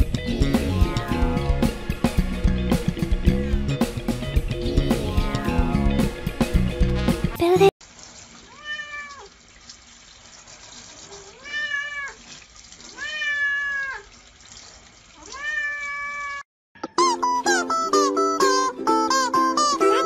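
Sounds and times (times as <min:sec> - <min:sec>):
plucked-string music: 0:00.0 - 0:07.5, 0:16.8 - 0:20.0
running water hiss: 0:07.8 - 0:16.2
cat meowing: 0:08.5 - 0:09.3, 0:11.3 - 0:12.2, 0:12.9 - 0:14.1, 0:15.2 - 0:16.4.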